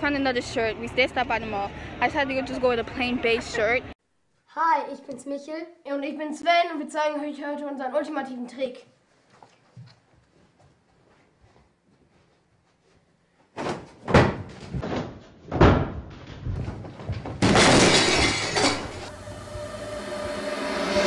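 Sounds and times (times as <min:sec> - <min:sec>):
crockery crashing and breaking: 0:17.2 - 0:19.1.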